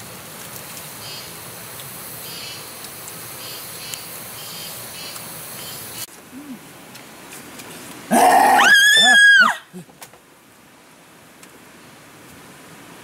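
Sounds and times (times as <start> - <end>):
insects chirping in bursts: 0.0 - 6.1
steady background hiss: 0.0 - 13.0.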